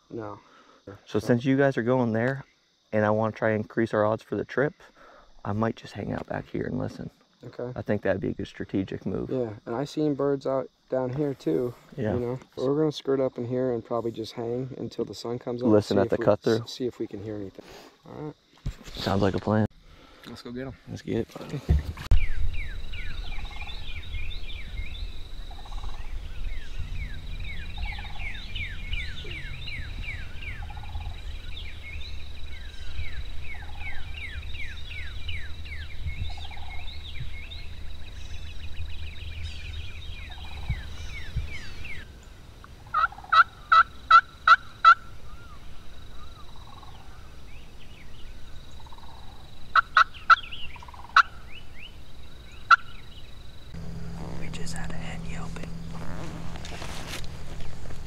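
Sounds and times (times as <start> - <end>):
small birds chirping: 14.0 - 58.0
wild turkey yelps: 42.9 - 47.2, 48.9 - 51.4, 52.7 - 53.0.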